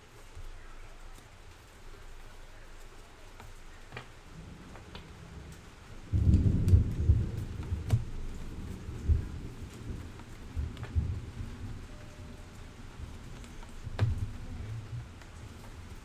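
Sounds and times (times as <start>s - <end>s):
loud low rumbling noise: 4.3s - 16.0s.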